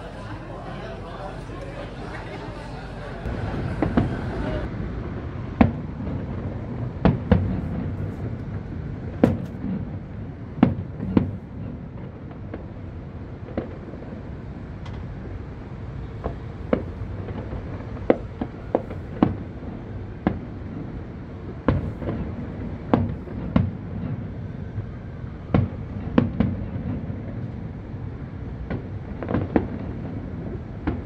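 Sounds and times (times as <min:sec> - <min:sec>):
low rumbling echo: 0:00.0 - 0:24.8
fireworks bangs: 0:03.2 - 0:31.0.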